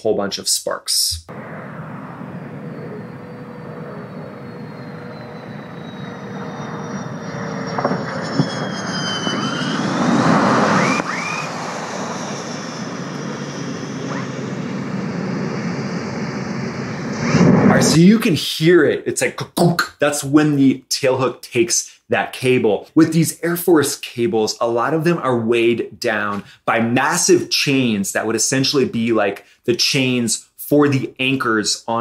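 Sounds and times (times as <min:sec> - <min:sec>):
jet engines whining: 0:01.3 - 0:18.8.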